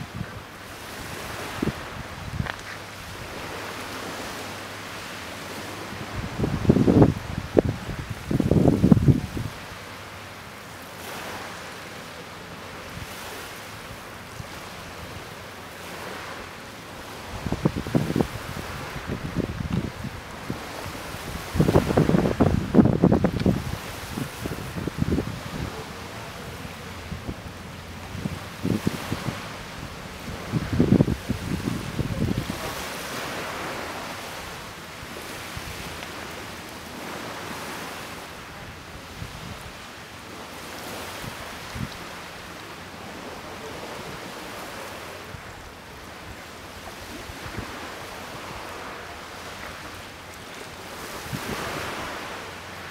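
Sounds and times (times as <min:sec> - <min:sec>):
wind buffeting microphone: 0:00.0 - 0:04.2, 0:05.7 - 0:09.8, 0:17.0 - 0:42.4, 0:43.0 - 0:50.0, 0:50.9 - 0:52.4
seawater washing and lapping: 0:00.0 - 0:52.9.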